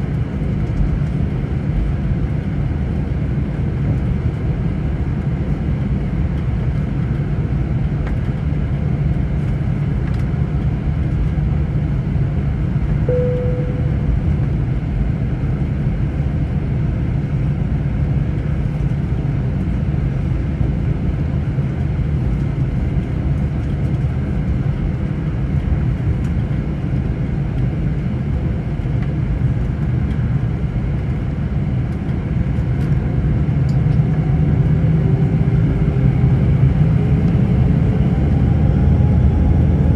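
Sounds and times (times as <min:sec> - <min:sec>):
jet engine rumble: 0:00.0 - 0:39.9
cabin tone: 0:13.1 - 0:14.1.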